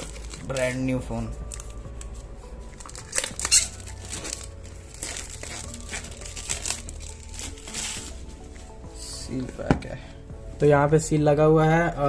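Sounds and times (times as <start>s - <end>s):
plastic wrapping crinkling: 0.0s - 8.7s.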